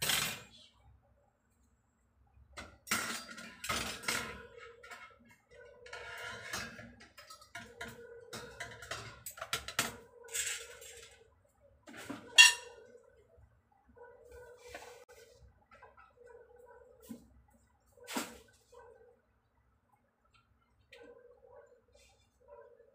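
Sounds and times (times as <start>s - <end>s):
metal pots and lids clattering: 0.0s - 0.6s, 2.6s - 11.2s.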